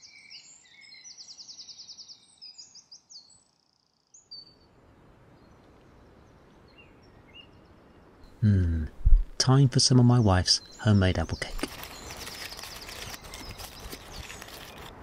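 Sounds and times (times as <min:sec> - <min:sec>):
faint outdoor hiss: 0:00.0 - 0:15.0
distant bird chirps: 0:08.7 - 0:15.0
songbird trilling: 0:10.2 - 0:14.7.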